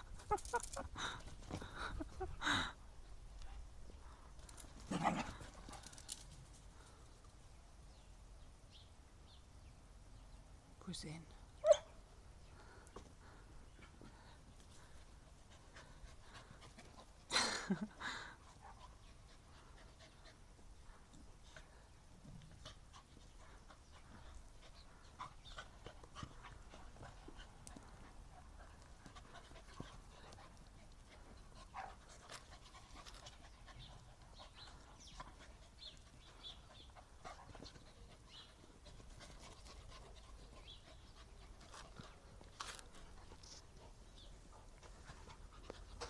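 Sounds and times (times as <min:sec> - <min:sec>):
dogs panting: 0:00.0 - 0:07.0, 0:12.5 - 0:46.0
dogs mouthing and scuffling: 0:03.4 - 0:06.7, 0:22.2 - 0:46.0.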